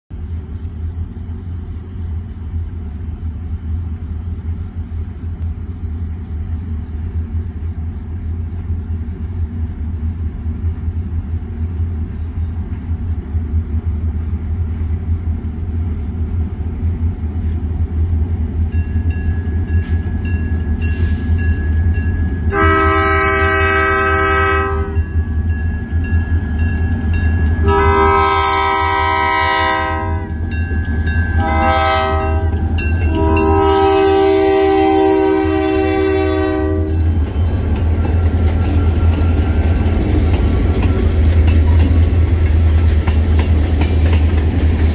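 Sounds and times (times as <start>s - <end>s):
diesel locomotives rumbling: 0.1s - 44.9s
locomotive air horn blasts: 22.5s - 25.2s, 27.6s - 30.4s, 31.4s - 37.1s.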